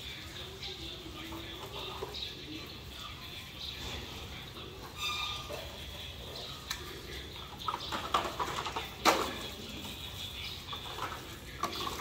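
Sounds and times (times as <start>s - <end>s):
plastic toys clattering: 4.8s - 12.0s.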